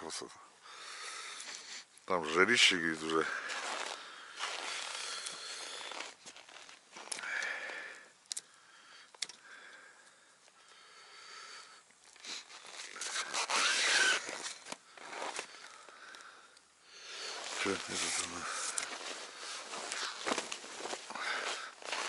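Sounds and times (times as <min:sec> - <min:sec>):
rustling and crunching in snow: 0:02.2 - 0:07.2, 0:12.2 - 0:15.6, 0:17.2 - 0:22.0.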